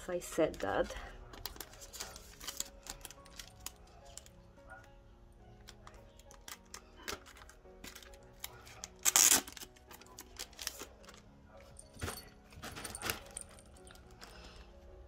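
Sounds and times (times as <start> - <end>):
plastic rustling: 0.5 - 4.4, 5.7 - 14.5
plastic sleeve crinkling: 0.5 - 4.4, 5.6 - 11.3.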